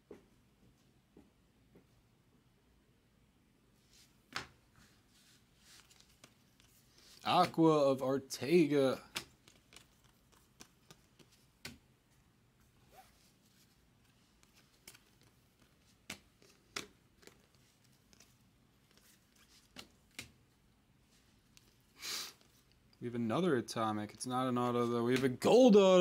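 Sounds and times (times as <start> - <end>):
cards flipping clicks: 5.8 - 7.6, 9.0 - 11.8, 14.4 - 18.3.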